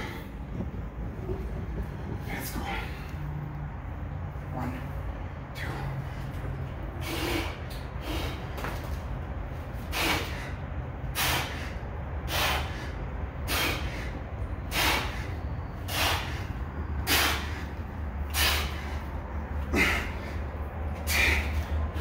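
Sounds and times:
steady low hum: 0.0s - 22.0s
man breathing out hard: 5.6s - 8.8s, 9.8s - 22.0s.

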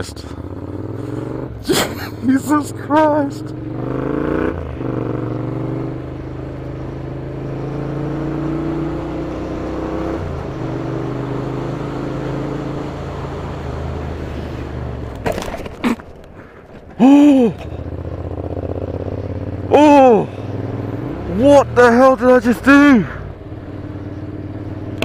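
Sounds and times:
motorcycle engine running: 0.0s - 25.0s.

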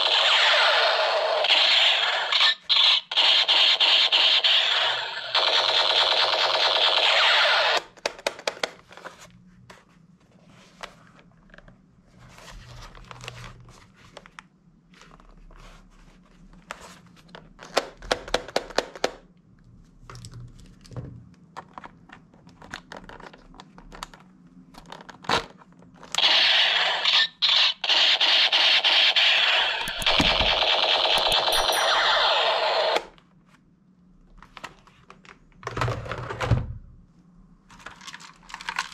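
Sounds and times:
electronic machine-gun sound effect: 0.0s - 7.9s, 26.2s - 33.1s.

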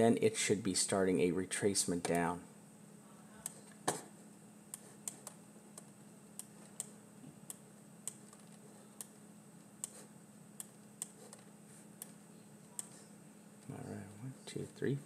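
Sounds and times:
faint steady hum: 0.0s - 15.0s
mouse and keyboard clicks: 8.1s - 9.2s.

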